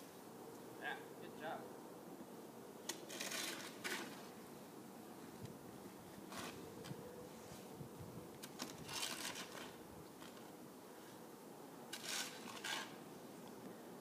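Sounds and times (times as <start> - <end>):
shovel scraping snow on pavement: 2.9 - 4.4, 6.2 - 6.7, 8.6 - 11.2, 11.9 - 13.0.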